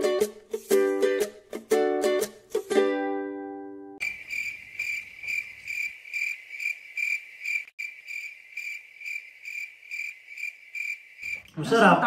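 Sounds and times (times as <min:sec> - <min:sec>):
ukulele chord: 0:00.0 - 0:04.0
cricket chirping sound effect: 0:04.0 - 0:11.5.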